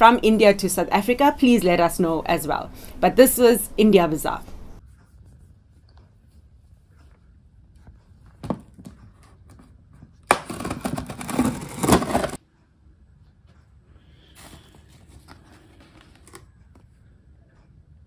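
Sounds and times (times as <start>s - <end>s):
packaging rustling and crackling: 10.3s - 12.4s.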